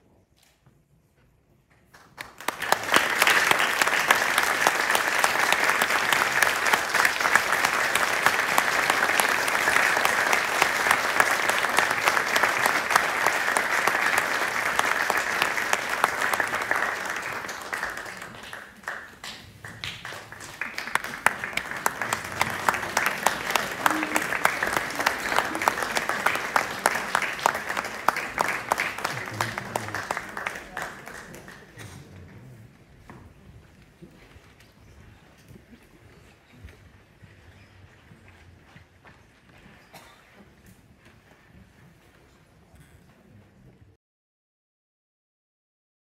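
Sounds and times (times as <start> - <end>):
audience applauding: 2.0 - 32.7.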